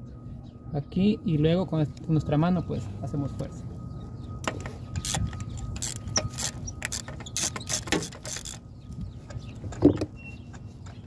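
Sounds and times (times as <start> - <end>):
ratchet clicking: 5.0 - 8.6.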